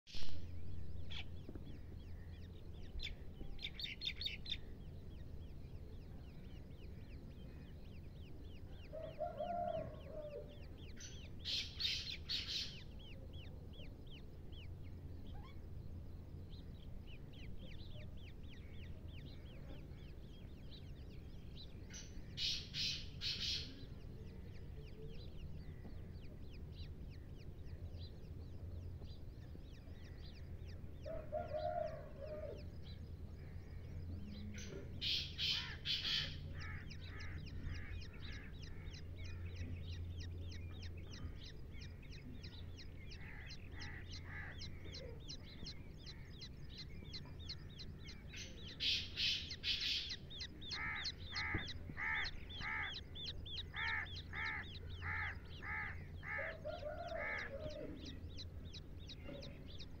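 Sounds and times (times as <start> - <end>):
steady low hum: 0.1 - 60.0
chicks peeping: 0.9 - 60.0
shrill bird calls: 34.4 - 39.8, 42.2 - 60.0.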